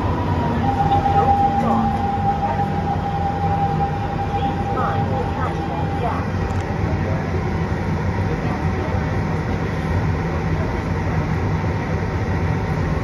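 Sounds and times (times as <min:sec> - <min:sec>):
faint whines: 0:00.0 - 0:07.4
train wheels rumbling: 0:00.0 - 0:13.0.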